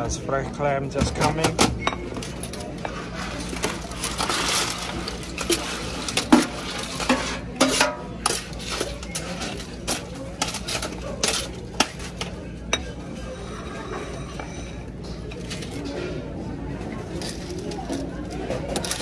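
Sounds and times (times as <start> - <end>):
utensils clinking on metal pans: 0.0 - 19.0.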